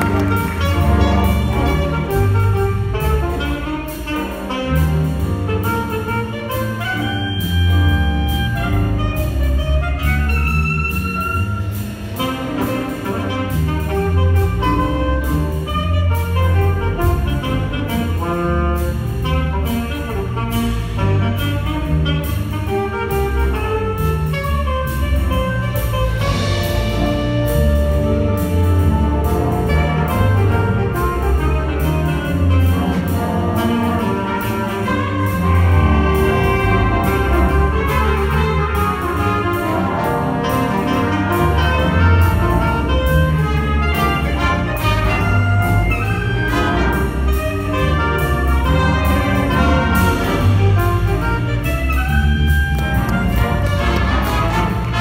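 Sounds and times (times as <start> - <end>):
jazz big band playing: 0.0 - 55.0.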